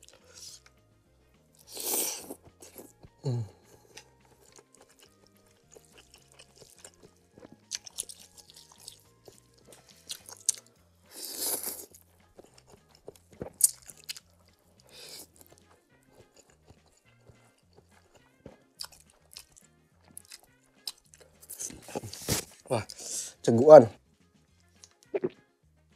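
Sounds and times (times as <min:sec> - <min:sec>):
soft background music: 0:00.0 - 0:25.9
chewing and smacking: 0:01.4 - 0:23.0
noodle slurp: 0:01.6 - 0:02.4.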